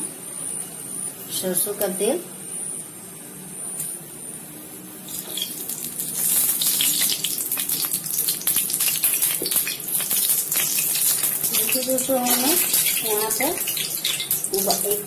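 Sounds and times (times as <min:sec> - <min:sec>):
oil sizzling and crackling: 0:05.0 - 0:15.0.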